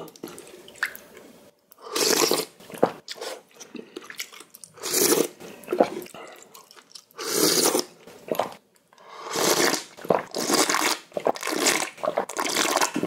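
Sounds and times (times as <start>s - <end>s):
chewing with mouth clicks: 5.7s - 7.2s.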